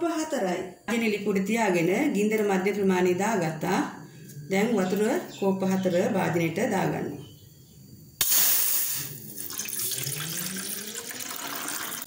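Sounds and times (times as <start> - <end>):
water pouring into metal pot: 8.2 - 12.0.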